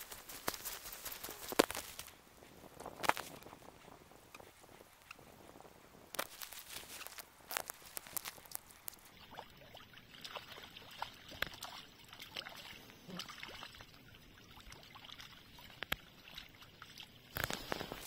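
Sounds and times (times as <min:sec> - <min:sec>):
pebbles clicking: 0:00.0 - 0:02.1, 0:06.2 - 0:09.1
fish splashing in shallow water: 0:06.2 - 0:18.0.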